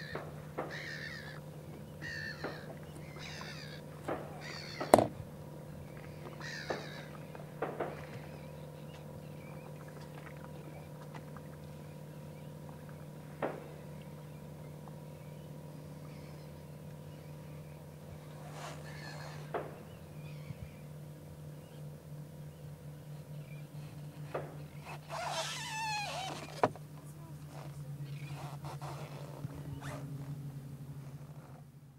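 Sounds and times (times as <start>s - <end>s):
boat engine idling: 0.0s - 31.9s
short knocks: 4.0s - 5.2s.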